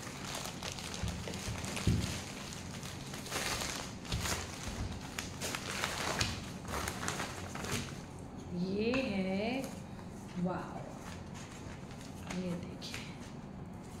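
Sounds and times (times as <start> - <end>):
packaging rustling and crinkling: 0.0 - 8.2.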